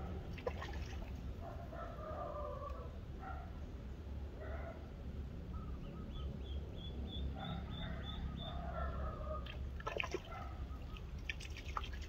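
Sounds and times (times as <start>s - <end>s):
splashing at water surface: 0.3s - 1.2s, 9.5s - 10.3s, 11.0s - 12.0s.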